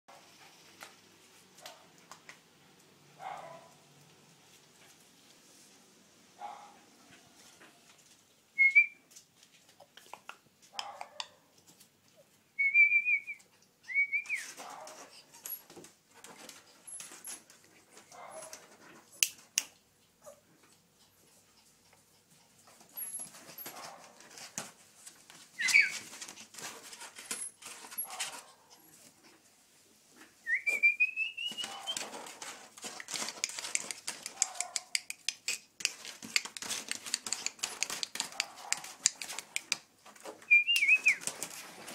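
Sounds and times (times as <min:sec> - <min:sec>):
puppies whining: 0:25.6 - 0:26.1, 0:30.5 - 0:32.2.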